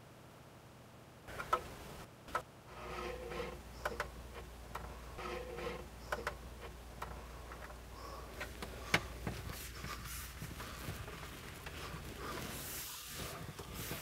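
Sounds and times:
sink scraping into cutout: 2.7 - 4.0.

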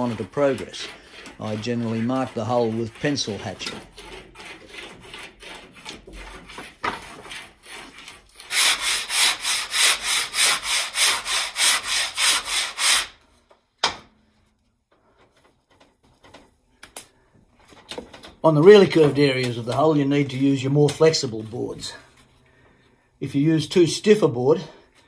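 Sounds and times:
pencil scratching on wood: 0.0 - 13.1
sandpaper rubbing on wood: 0.0 - 13.2.

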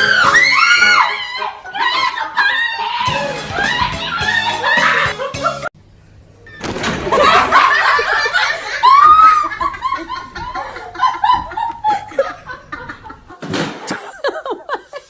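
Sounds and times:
person laughing hard: 1.8 - 5.7, 7.1 - 15.0.

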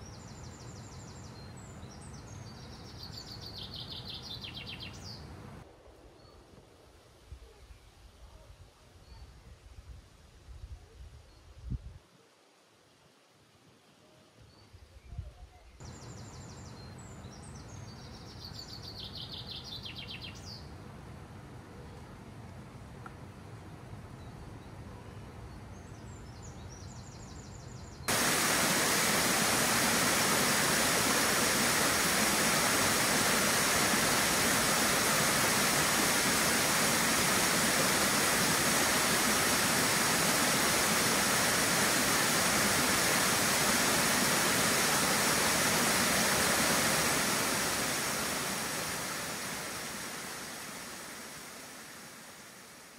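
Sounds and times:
bird chirp: 0.0 - 5.3, 15.8 - 20.6
loud rushing water: 28.1 - 52.9.

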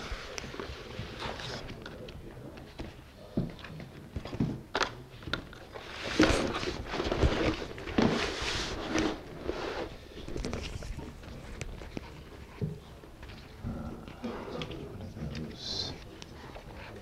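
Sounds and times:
scraping and rustling: 5.5 - 13.6.

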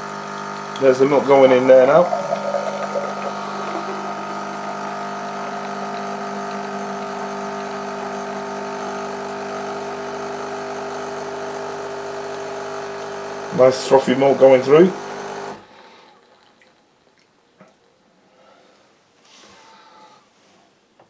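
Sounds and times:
coffee machine pump buzzing: 0.0 - 15.8.

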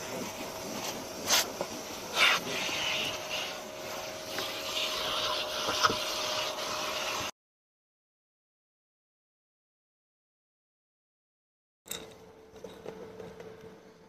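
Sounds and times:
vacuum hissing and humming: 0.0 - 7.3
vacuum nozzle scraping and knocking: 4.3 - 7.3.

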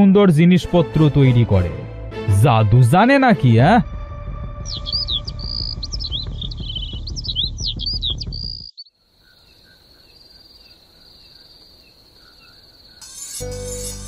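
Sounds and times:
background music: 0.0 - 8.4, 13.0 - 14.0
birds chirping: 4.5 - 13.1
crickets chirring: 4.7 - 13.4.

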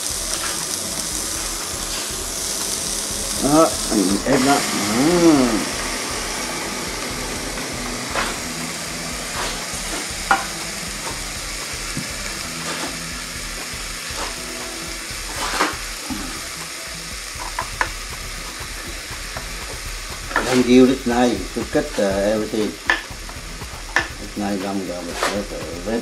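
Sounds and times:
shrimp sizzling on grill: 0.0 - 26.0
sharp pops: 22.6 - 24.2.

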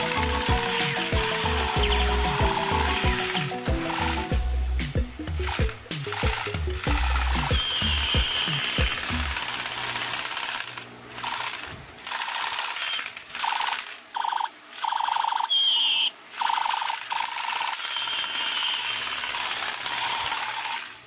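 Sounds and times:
toy gun machine-gun sound effect: 0.0 - 4.4, 5.3 - 21.0
toy gun motor drum rattle: 0.0 - 4.4, 5.3 - 15.7, 16.3 - 21.0
high chirps: 0.0 - 9.3.

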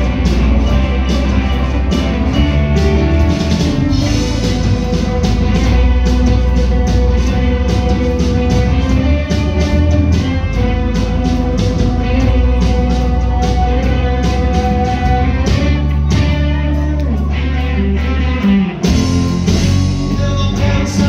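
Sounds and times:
drum beat: 0.0 - 16.6
electric guitars: 0.0 - 21.0.

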